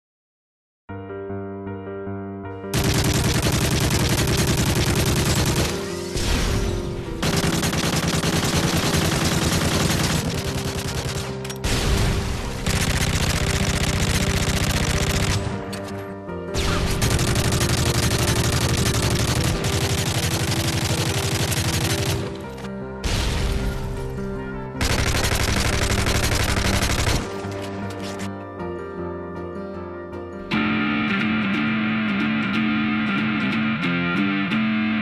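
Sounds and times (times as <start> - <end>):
rapid machine gun fire: 2.7 - 6.5, 7.2 - 15.6, 16.6 - 22.4, 24.8 - 27.4
loud music: 30.5 - 35.0.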